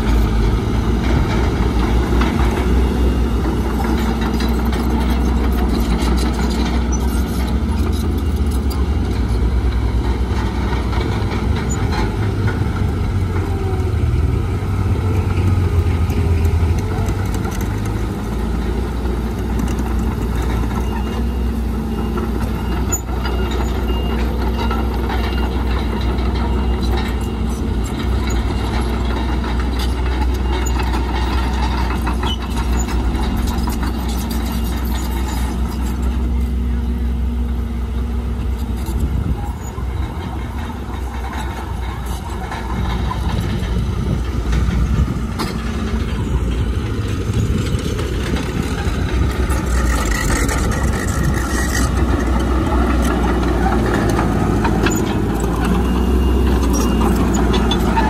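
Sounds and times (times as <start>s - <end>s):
bulldozer diesel engine drone: 0.0s - 58.0s
machine clanks and clicks: 38.9s - 58.0s.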